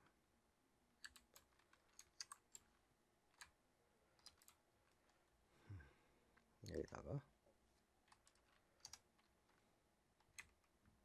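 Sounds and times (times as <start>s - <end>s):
keyboard keystrokes clicking: 1.0s - 2.6s, 4.2s - 4.6s.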